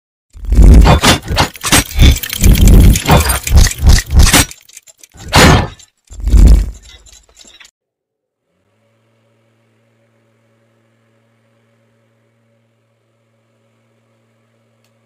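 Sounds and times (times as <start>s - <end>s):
small fan motor humming: 8.3s - 15.0s.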